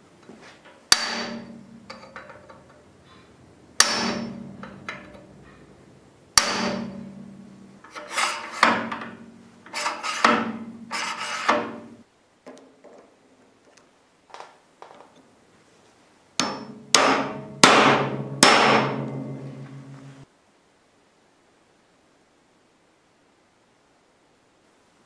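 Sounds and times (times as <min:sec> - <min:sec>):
hammer striking metal punch: 0:00.9 - 0:02.6, 0:03.8 - 0:05.3, 0:06.4 - 0:07.4, 0:08.5 - 0:09.3, 0:10.1 - 0:12.0, 0:16.4 - 0:20.0
rubbing and scraping: 0:07.8 - 0:11.9.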